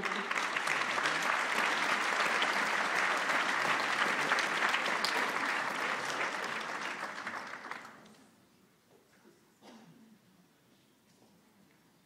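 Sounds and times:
audience clapping: 0:00.0 - 0:08.2.

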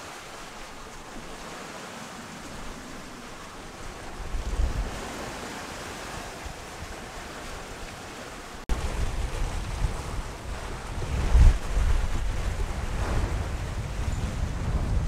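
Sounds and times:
rush of water: 0:00.0 - 0:15.0
gusty wind buffeting microphone: 0:02.5 - 0:05.4, 0:08.7 - 0:15.0.

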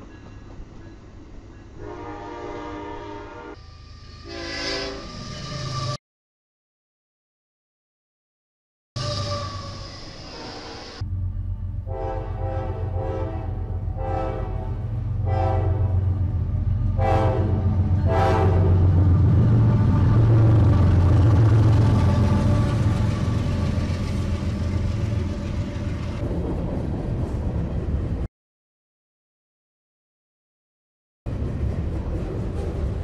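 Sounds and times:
locomotive air horn blasts: 0:01.8 - 0:06.0, 0:11.8 - 0:16.2, 0:16.9 - 0:18.9
locomotive engine rumbling: 0:09.0 - 0:28.3.

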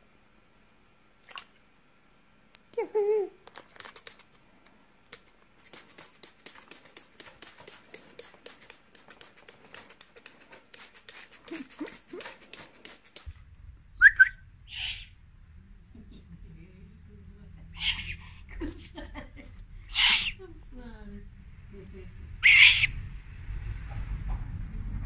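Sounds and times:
owl high chirp: 0:14.0 - 0:15.2, 0:17.7 - 0:18.2, 0:19.9 - 0:20.4, 0:22.4 - 0:23.0
owl low calls: 0:14.0 - 0:15.2, 0:17.7 - 0:18.2, 0:19.9 - 0:20.4, 0:22.4 - 0:23.0
owl hiss: 0:14.7 - 0:15.2, 0:17.7 - 0:18.2, 0:19.8 - 0:20.4, 0:22.4 - 0:23.0
owl clicking: 0:17.8 - 0:18.2, 0:19.9 - 0:20.4, 0:22.4 - 0:22.9.

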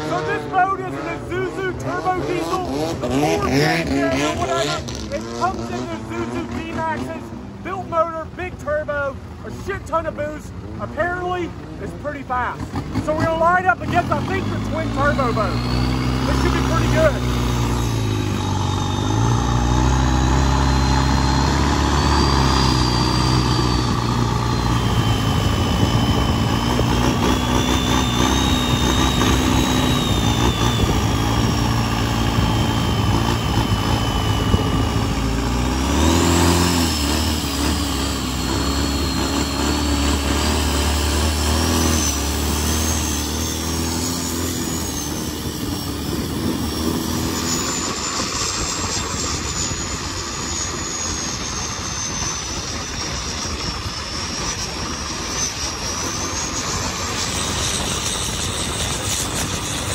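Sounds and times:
boat engine drone: 0:00.0 - 0:59.9
high whine: 0:00.0 - 0:59.9.

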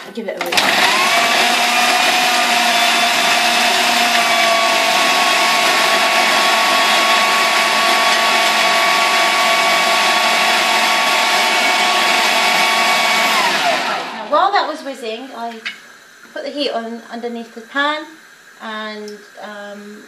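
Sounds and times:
food processor motor whine: 0:00.0 - 0:14.6.

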